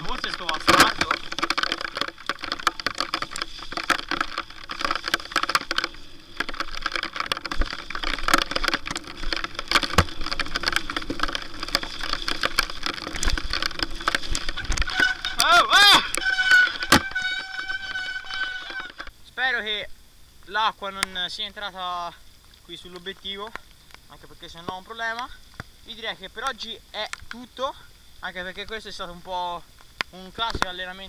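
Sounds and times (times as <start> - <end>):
mountain bike clattering down trail: 0.0 - 19.2.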